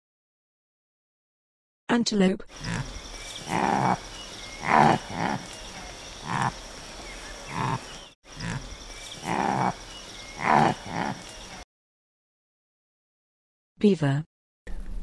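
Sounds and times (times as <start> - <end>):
antelope calling: 2.5 - 11.6.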